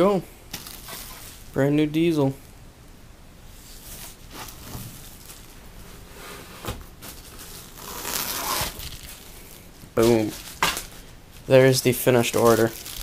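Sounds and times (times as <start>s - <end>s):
plastic sleeve rustling: 0.5s - 1.6s, 3.5s - 13.0s.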